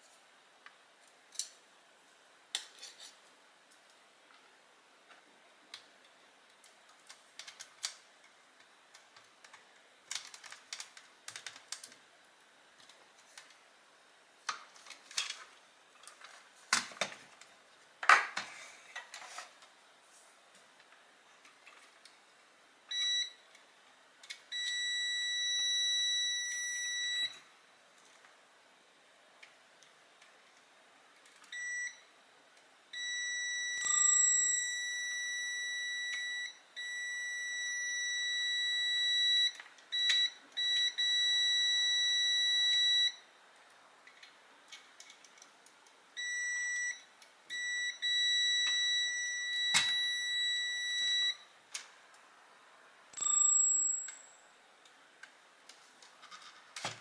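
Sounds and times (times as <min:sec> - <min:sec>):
clicks of parts and tools handled: 0:14.5 - 0:19.7, 0:44.0 - 0:46.0
electronic beeper high tone: 0:33.0 - 0:43.2, 0:53.2 - 0:54.4.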